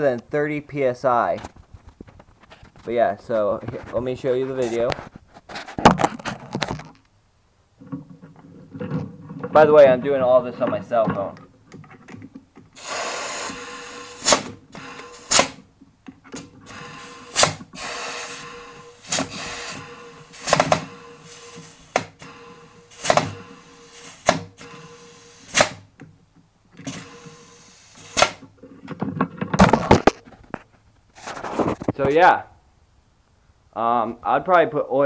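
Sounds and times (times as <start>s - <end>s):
compressed air hissing: 12.8s - 15.6s, 16.6s - 25.9s, 26.8s - 28.4s.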